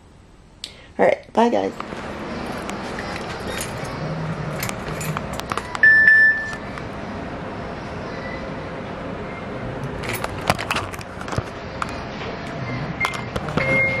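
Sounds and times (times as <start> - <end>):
keys jangling: 2.5 - 5.7, 10.0 - 11.0
short electronic beep: 5.8 - 6.6, 12.7 - 14.0.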